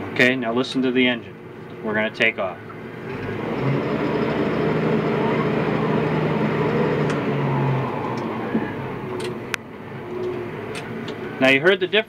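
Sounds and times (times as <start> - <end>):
tractor diesel engine revving: 2.9 - 11.6.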